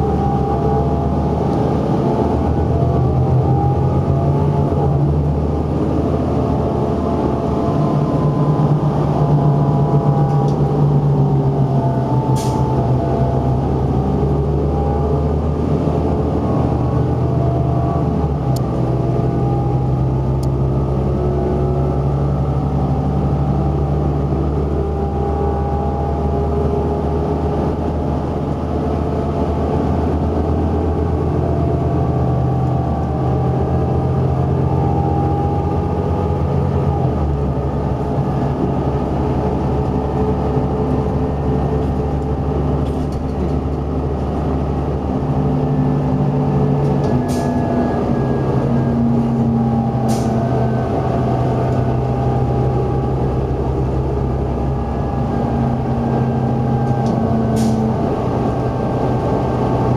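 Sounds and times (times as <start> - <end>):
bus diesel engine droning: 0.0 - 59.9
road and tyre noise: 0.0 - 59.9.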